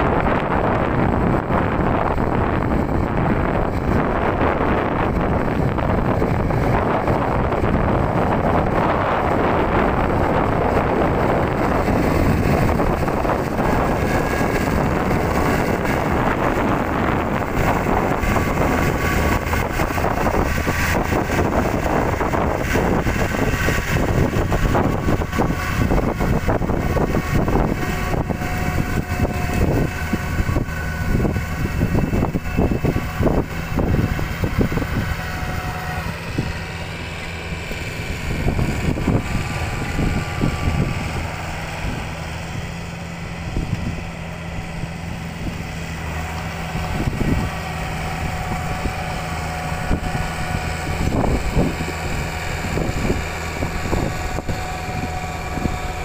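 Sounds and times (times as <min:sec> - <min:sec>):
rotary tiller churning mud: 0:00.0 - 0:56.0
tractor diesel engine running: 0:00.0 - 0:56.0.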